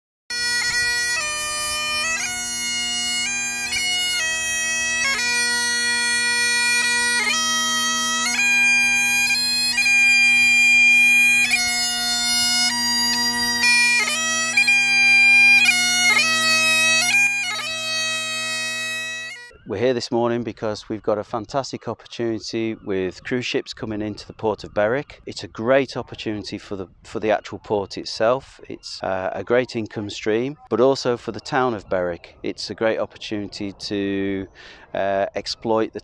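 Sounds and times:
bagpipe playing a tune: 0.3s - 19.7s.

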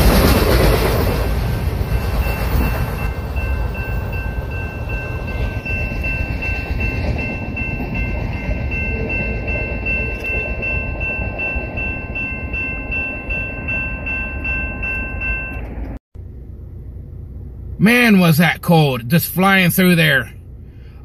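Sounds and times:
freight train rumble: 0.0s - 17.9s
crossing warning bell ringing: 1.6s - 16.0s
low hum inside vehicle: 12.8s - 21.0s.

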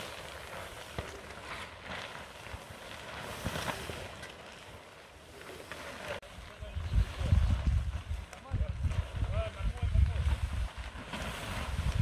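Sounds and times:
plastic film flapping in wind: 0.0s - 12.0s
wind buffeting microphone: 6.4s - 12.0s.

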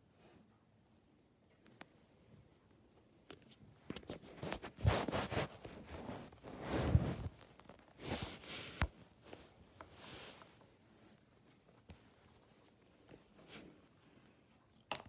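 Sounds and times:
fabric comforter rustling: 4.3s - 14.4s.

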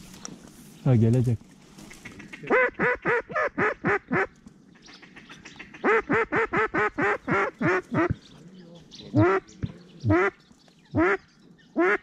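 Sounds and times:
duck quacking: 1.9s - 4.3s, 4.9s - 8.2s, 9.1s - 10.4s, 11.8s - 12.0s.

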